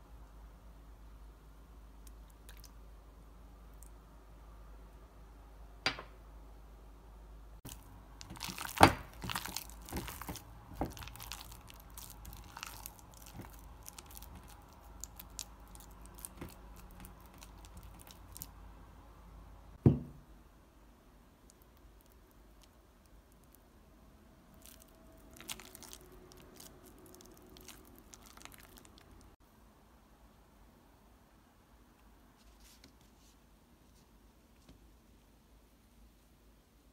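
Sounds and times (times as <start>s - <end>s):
paste squelching being mixed by hand: 7.7s - 18.5s.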